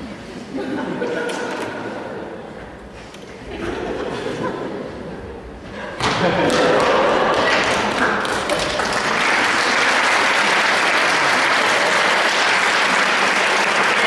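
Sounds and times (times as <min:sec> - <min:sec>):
audience applauding: 0:06.5 - 0:14.0.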